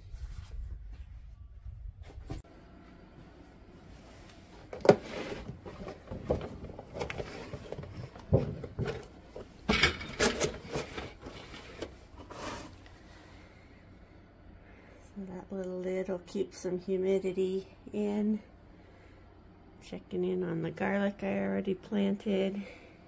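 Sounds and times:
plastic objects clattering on tile floor: 4.7s - 12.3s.

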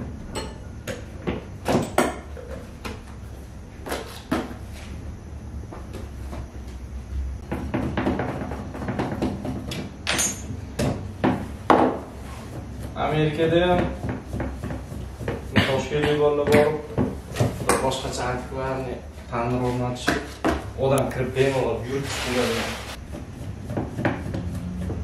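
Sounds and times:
bakery knocks and clunks: 0.3s - 3.1s, 7.4s - 18.0s, 20.0s - 20.7s.

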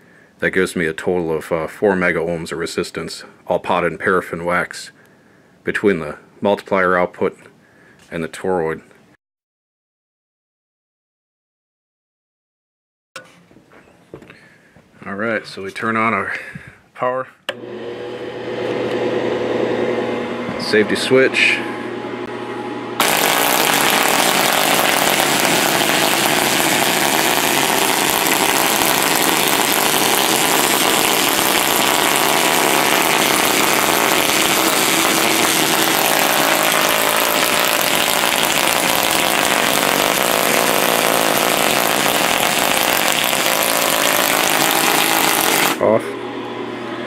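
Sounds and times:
high-voltage sparks crackling: 23.0s - 45.8s.

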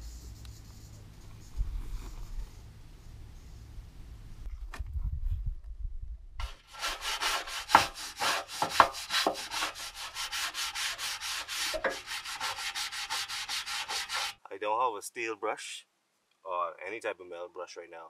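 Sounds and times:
brush scrubbing metal: 6.4s - 14.4s.

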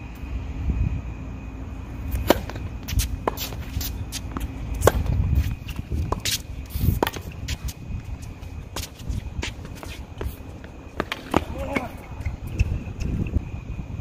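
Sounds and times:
wind rumble on microphone: 0.0s - 14.0s
tennis shoes scuffing on court: 2.0s - 13.2s
racket hitting tennis ball: 2.1s - 7.8s, 8.7s - 13.1s.

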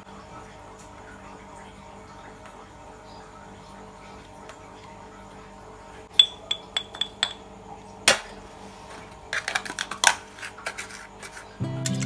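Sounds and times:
metal spoons clinking: 6.2s - 7.4s
foil cups clicking: 8.1s - 12.0s
batter scraped into cup: 9.4s - 11.6s.

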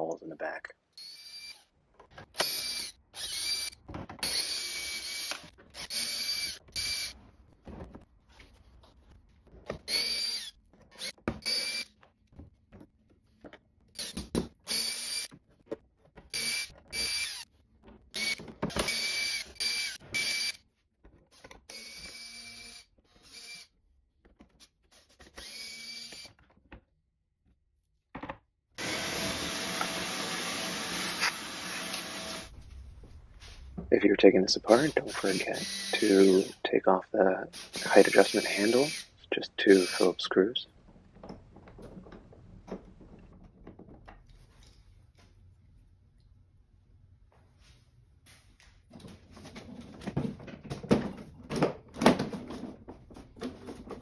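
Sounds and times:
cordless drill whining: 2.4s - 7.2s, 18.2s - 20.6s, 28.8s - 32.5s, 34.9s - 36.6s, 37.6s - 40.2s.

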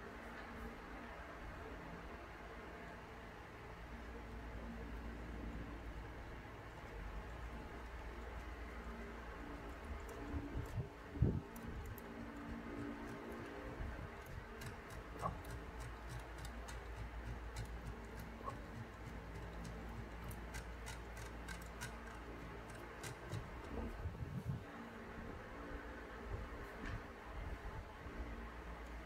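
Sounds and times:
toy gears clicking: 14.2s - 23.8s.

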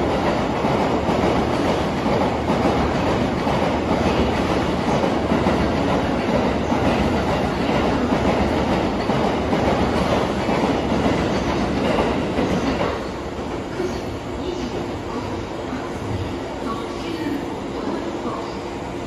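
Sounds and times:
train wheels clattering on rails: 0.0s - 14.8s.

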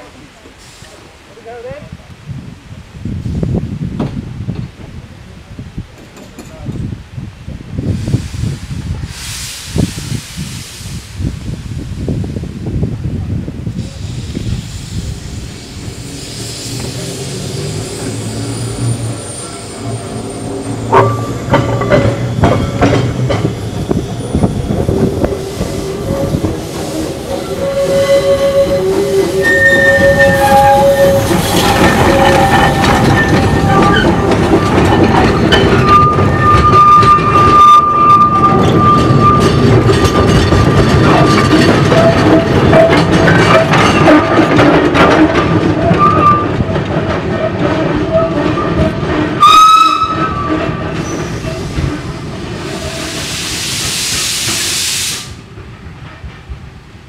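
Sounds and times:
wheels clicking over rail joints: 5.9s - 6.9s, 20.6s - 53.0s
steam locomotive passing: 7.7s - 57.0s
wheel squeals: 23.6s - 52.1s.

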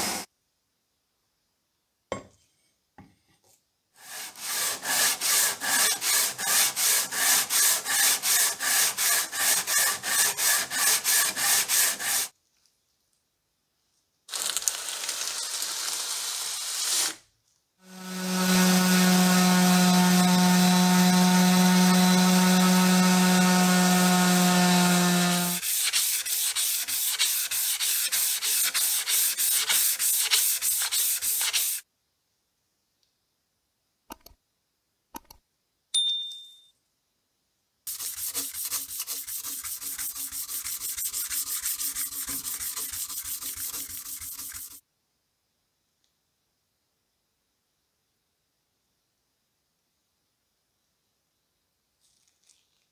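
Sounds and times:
hand sanding strokes on metal: 4.0s - 12.3s, 18.2s - 31.8s, 37.9s - 44.8s
orbital sander humming whine: 17.9s - 25.6s.

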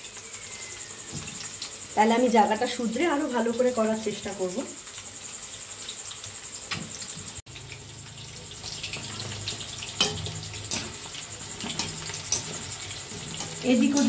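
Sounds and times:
food deep-frying in oil: 0.0s - 14.0s
metal skimmer clinking on pan: 9.9s - 14.0s.

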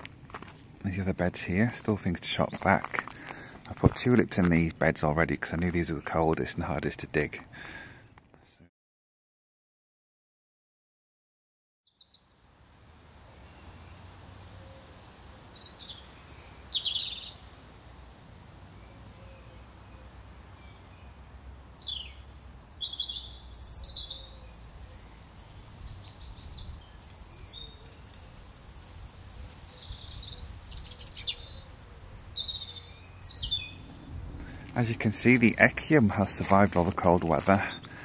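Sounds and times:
robin singing: 11.8s - 12.4s, 13.4s - 17.9s, 18.7s - 38.0s.

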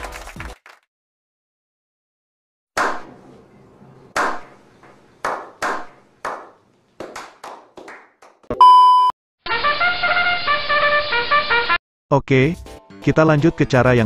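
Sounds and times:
people slow clapping: 0.0s - 0.9s, 5.2s - 8.5s
countdown beep: 8.5s - 9.1s.

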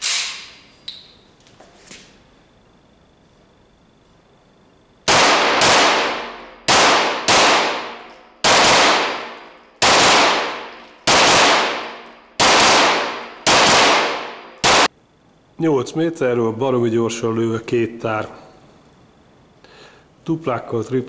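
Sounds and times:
gunshots echoing indoors: 5.0s - 14.9s.

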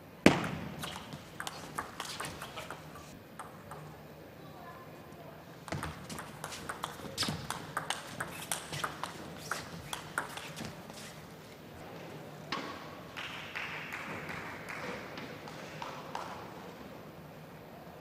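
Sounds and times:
table tennis ball clicking: 0.5s - 4.0s, 5.7s - 10.6s.

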